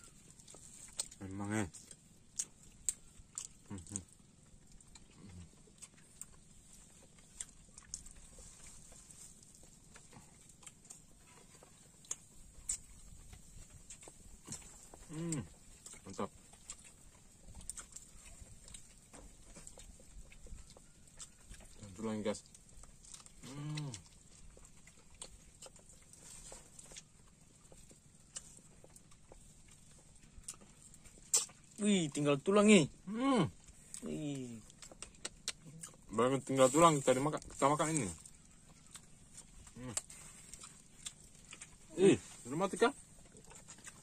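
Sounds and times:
person chewing food: 0:00.0 - 0:44.0
person humming mmm: 0:15.0 - 0:15.5, 0:23.4 - 0:24.0
mouth smacks and clicks: 0:30.3 - 0:31.8, 0:33.9 - 0:37.6.

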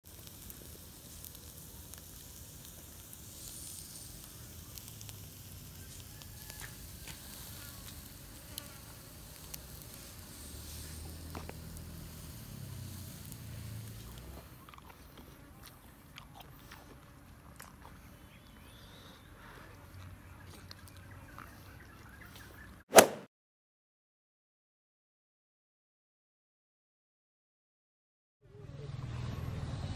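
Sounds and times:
faint grilling crackles: 0:00.0 - 0:22.8
fly buzzing: 0:00.6 - 0:15.6.

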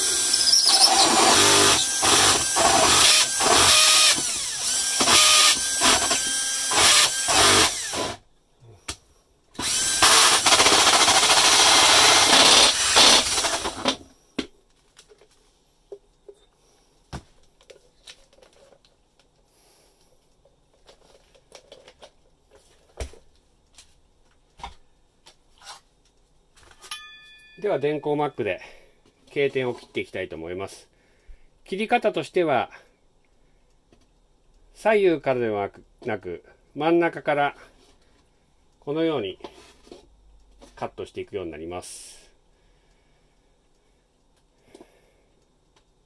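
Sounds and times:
drill hole saw cutting drywall: 0:00.0 - 0:08.2, 0:09.6 - 0:14.0.

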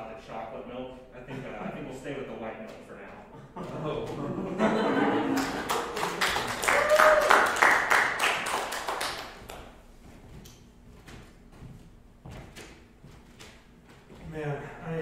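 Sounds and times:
audience clapping: 0:05.0 - 0:09.7
short cheer: 0:06.5 - 0:07.9.

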